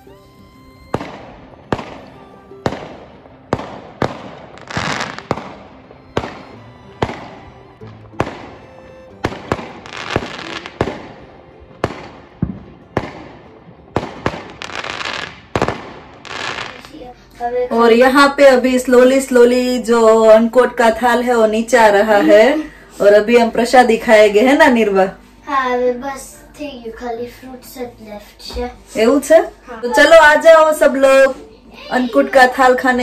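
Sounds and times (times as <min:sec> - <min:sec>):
fireworks crackling: 0:00.2 - 0:17.1
fireworks bangs: 0:00.5 - 0:16.9.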